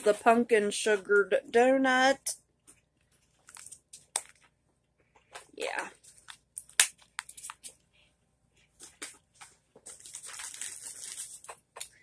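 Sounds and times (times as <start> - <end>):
packaging crinkling: 3.0 - 4.6, 6.0 - 7.8, 8.8 - 12.0.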